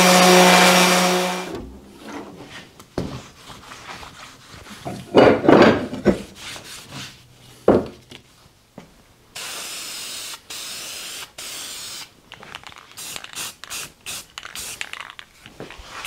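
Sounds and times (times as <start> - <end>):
aerosol spray can hissing: 9.4 - 12.1, 12.9 - 15.2.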